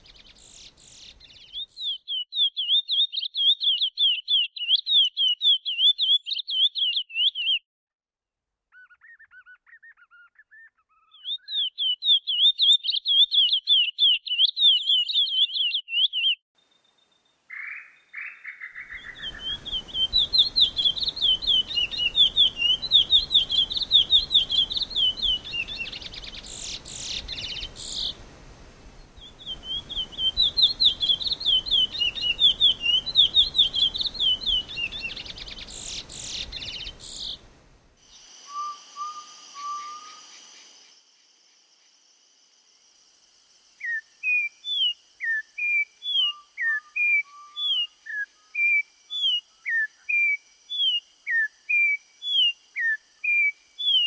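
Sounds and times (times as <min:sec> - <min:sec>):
finch singing warbling phrases: 0:08.7 - 0:16.4, 0:17.6 - 0:28.2, 0:29.2 - 0:37.5.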